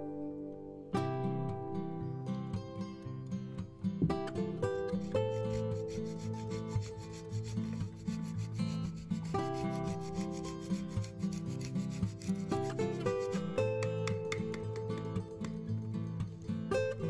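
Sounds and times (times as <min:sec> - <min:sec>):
acoustic guitar music: 0:00.0 - 0:17.0
cheese being grated: 0:04.8 - 0:14.2.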